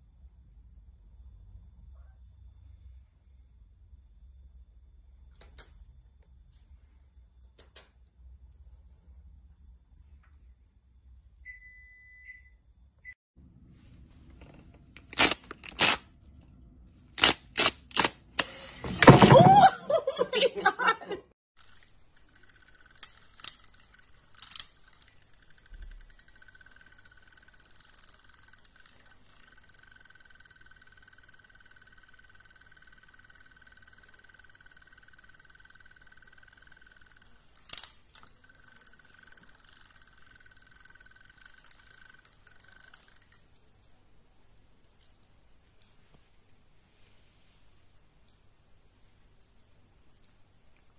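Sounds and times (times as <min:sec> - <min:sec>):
toy motor whirring: 0:15.0 - 0:16.0, 0:17.2 - 0:19.0, 0:21.6 - 0:43.5.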